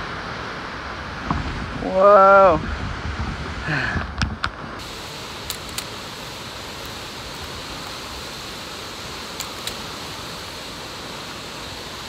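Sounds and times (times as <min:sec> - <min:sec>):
whitewater rushing over rocks: 0:00.0 - 0:12.0
small clicks: 0:05.4 - 0:05.9, 0:09.4 - 0:09.8.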